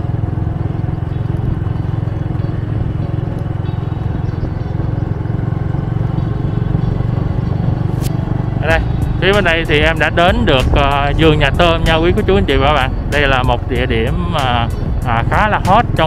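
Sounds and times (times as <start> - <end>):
motorbike engine: 0.0 - 16.0
wind noise on microphone: 2.8 - 13.3.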